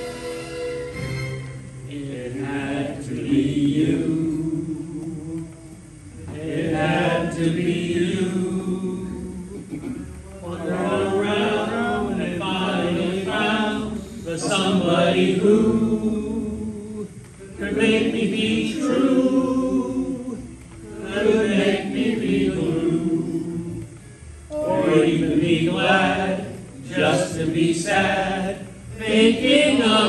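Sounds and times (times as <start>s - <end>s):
several voices singing: 1.9s - 30.0s.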